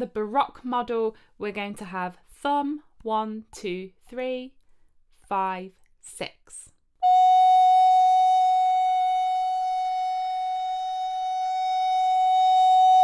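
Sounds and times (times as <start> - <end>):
recorder holding long note: 7.0 - 13.0.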